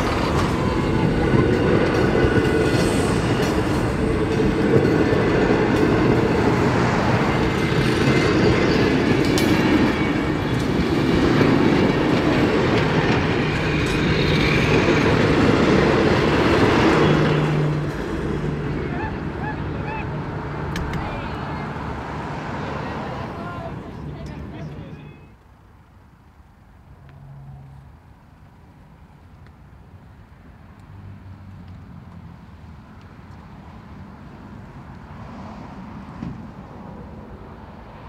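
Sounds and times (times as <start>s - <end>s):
train wheels clattering on rail: 0.0s - 18.5s.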